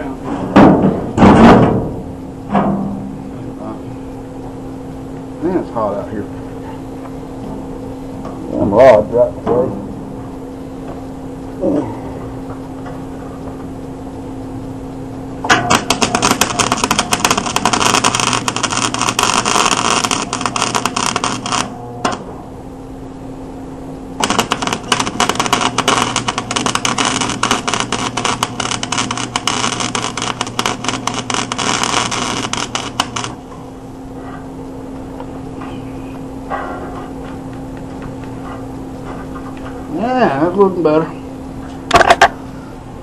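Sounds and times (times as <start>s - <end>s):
steady hum: 0.0s - 43.0s
arc welder crackling and sizzling: 14.6s - 22.3s, 24.1s - 36.0s.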